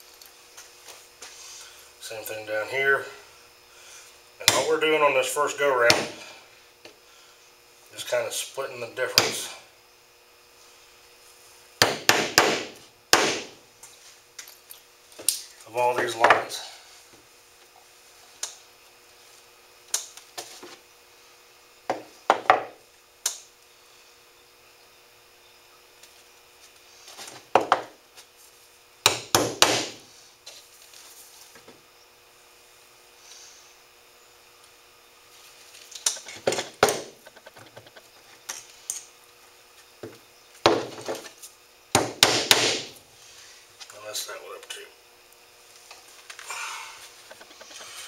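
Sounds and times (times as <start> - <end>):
hammer tapping nails into wood: 11.8 - 13.4.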